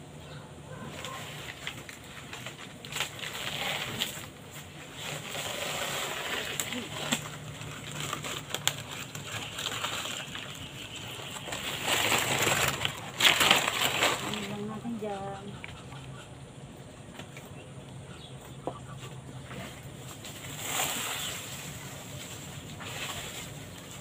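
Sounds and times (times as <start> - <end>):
dry leaves rustling and crackling: 0.9 - 15.4, 19.4 - 24.0.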